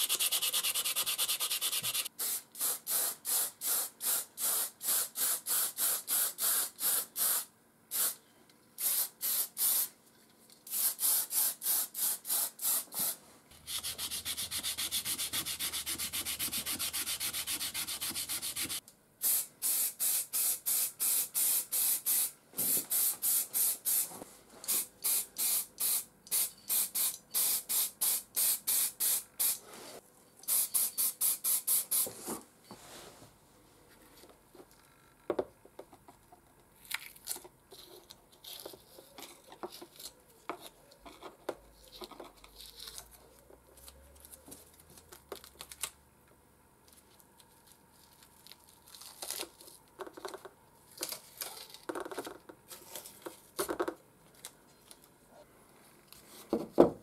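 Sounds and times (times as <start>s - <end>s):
hand sanding strokes: 0.0s - 2.1s, 12.8s - 18.8s
aerosol spray paint hiss: 0.0s - 8.2s, 8.8s - 9.9s, 10.7s - 24.1s, 24.7s - 29.7s, 30.4s - 32.1s.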